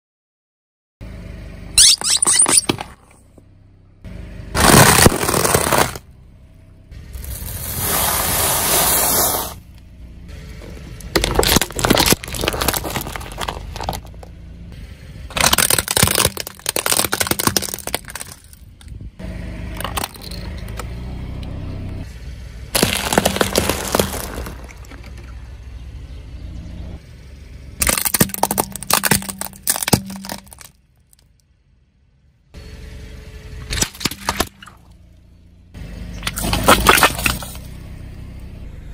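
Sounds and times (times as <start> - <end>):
car low rumble: 1.0 - 38.9
tyre crushing brittle objects: 4.6 - 6.0, 11.1 - 14.3, 15.3 - 18.9, 22.8 - 25.2, 27.8 - 30.8, 36.2 - 37.7.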